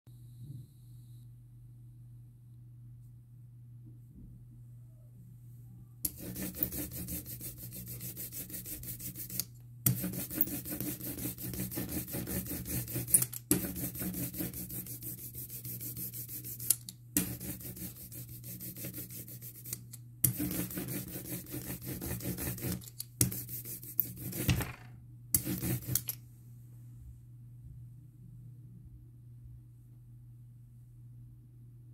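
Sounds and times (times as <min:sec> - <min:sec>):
ink roller rasping: 0:06.1 - 0:24.7, 0:25.4 - 0:26.2.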